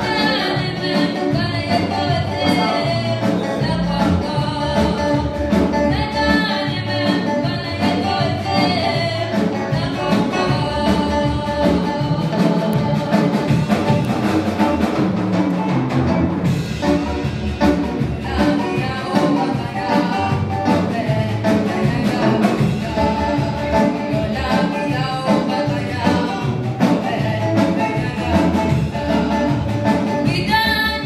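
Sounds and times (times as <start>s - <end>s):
choir singing gospel: 0.0s - 3.6s
band with drum beat: 0.0s - 31.0s.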